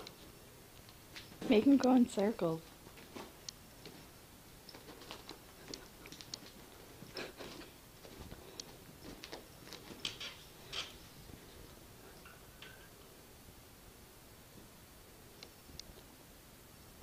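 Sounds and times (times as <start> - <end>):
cats scampering on carpet: 2.6 - 12.2.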